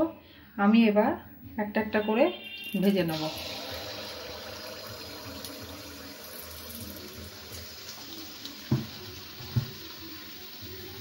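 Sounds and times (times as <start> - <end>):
batter sizzling in hot oil: 2.7 - 11.0.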